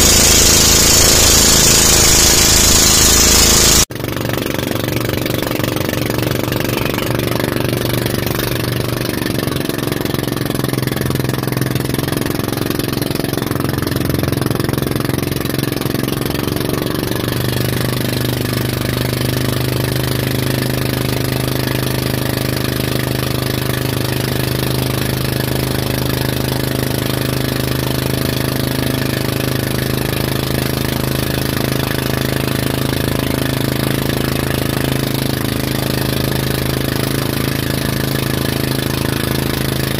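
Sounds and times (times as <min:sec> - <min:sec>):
rushing water: 0:00.0 - 0:03.9
motorboat engine running: 0:00.0 - 0:39.9.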